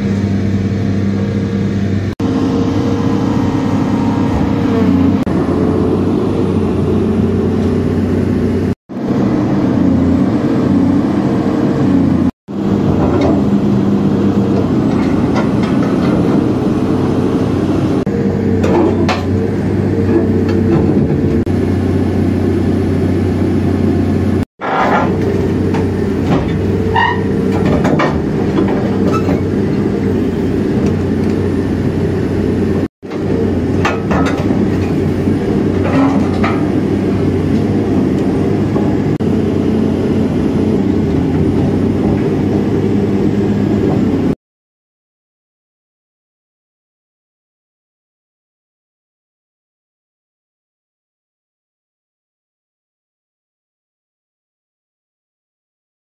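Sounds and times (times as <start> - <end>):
excavator diesel engine running: 0.0 - 44.4
metal clanks and creaks: 14.5 - 16.6, 24.6 - 30.0, 33.1 - 35.0, 35.7 - 36.9
short high squeals of steel: 26.8 - 27.5.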